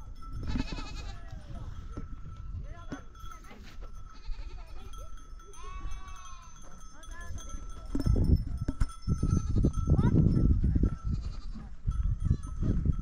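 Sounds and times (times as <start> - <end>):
goats bleating: 0.5 - 1.4, 5.6 - 6.6.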